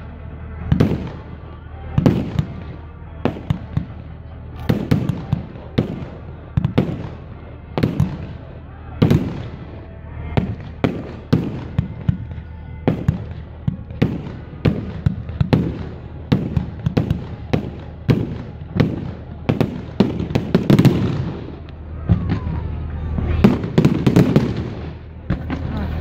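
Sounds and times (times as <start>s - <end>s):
fireworks banging: 0.0s - 26.0s
fireworks crackling: 0.0s - 26.0s.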